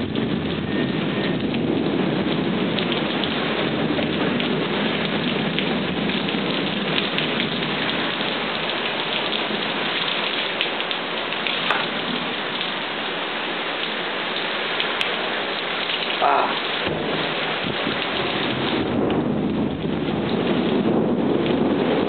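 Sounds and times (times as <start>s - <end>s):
heavy rain pouring: 0.0s - 22.0s.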